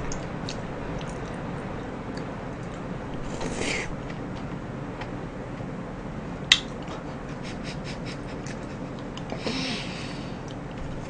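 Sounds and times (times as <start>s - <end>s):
breathy sound with hum: 9.3s - 10.6s.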